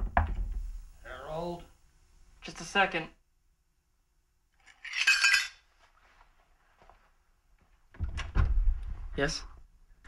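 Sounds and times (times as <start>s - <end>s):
metallic clinking and jingling: 4.6s - 5.6s.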